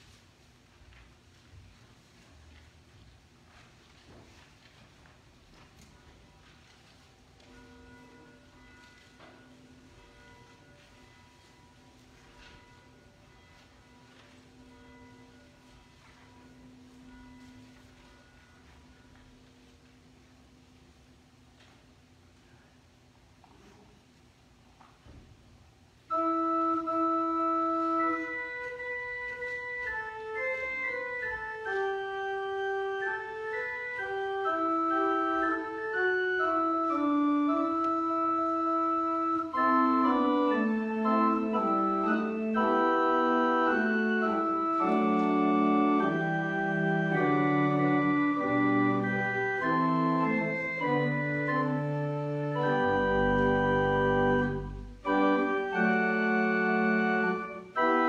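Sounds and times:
organ playing held chords: 0:26.0 - 0:58.0.

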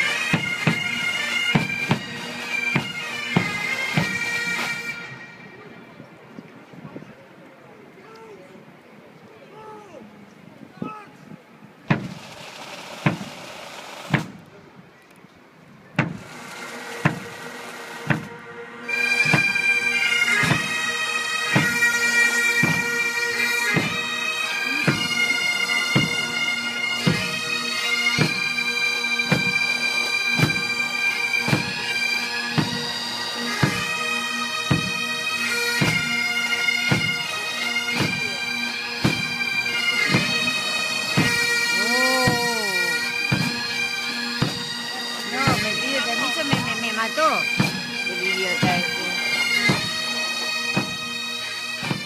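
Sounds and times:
drums beating: 0:00.0 - 0:04.2, 0:11.9 - 0:13.5, 0:17.0 - 0:17.4, 0:18.0 - 0:18.4, 0:22.6 - 0:22.9, 0:23.7 - 0:24.0, 0:24.7 - 0:26.4, 0:28.2 - 0:28.4, 0:35.8 - 0:36.1, 0:37.9 - 0:38.4, 0:39.0 - 0:43.8, 0:44.4 - 0:51.1, 0:51.8 - 0:52.0
bagpipes playing melody: 0:00.0 - 0:05.8, 0:16.0 - 0:52.0.

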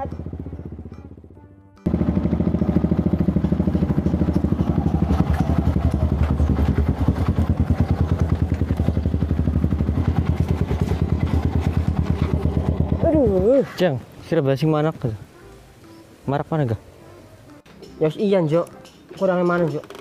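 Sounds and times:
small motorcycle engine idling: 0:00.0 - 0:13.5.

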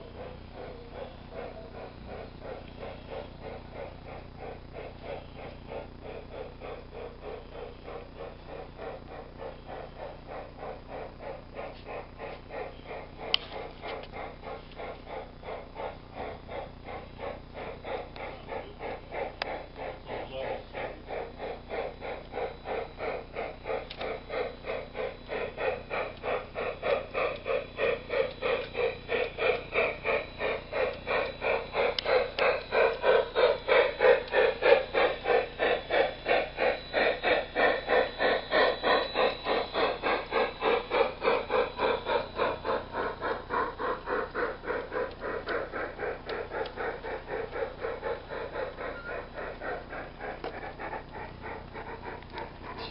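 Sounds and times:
model steam locomotive chuffing: 0:00.0 - 0:52.9.

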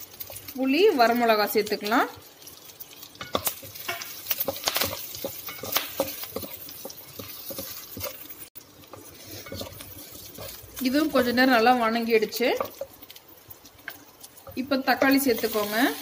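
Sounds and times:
faint oil sizzle: 0:00.0 - 0:16.0
shallots tumbling in a pan: 0:00.0 - 0:16.0
wooden spatula scraping a pan: 0:03.0 - 0:13.1.

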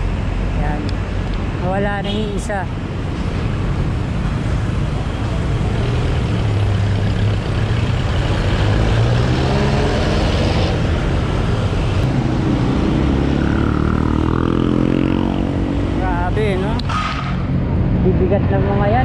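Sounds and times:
vehicle engines running: 0:00.0 - 0:19.0
engine revving up: 0:08.0 - 0:11.0, 0:12.0 - 0:16.0.

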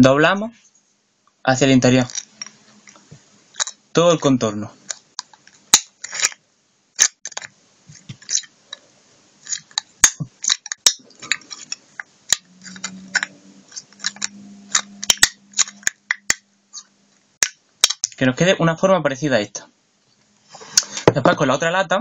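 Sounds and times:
pliers bending thin metal: 0:09.5 - 0:16.9.

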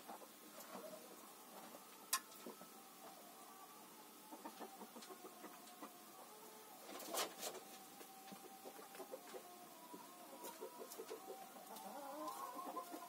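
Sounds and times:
hen clucking: 0:04.2 - 0:13.0.

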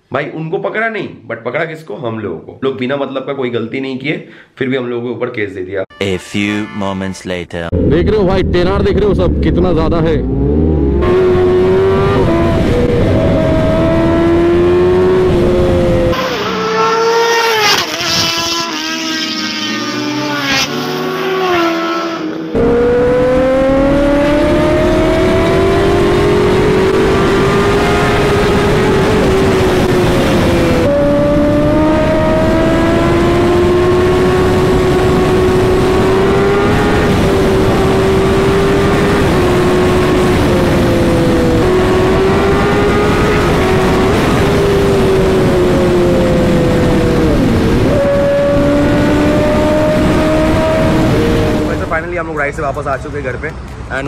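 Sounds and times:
thin engine pitches sweeping: 0:07.7 - 0:52.2
motorcycle engine revving through gears: 0:07.8 - 0:52.1
rush of wind: 0:10.6 - 0:16.3, 0:21.4 - 0:52.0.

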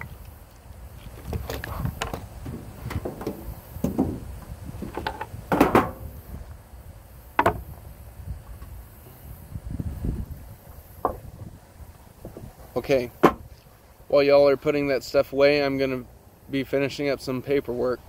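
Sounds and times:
objects being handled: 0:01.0 - 0:06.0.

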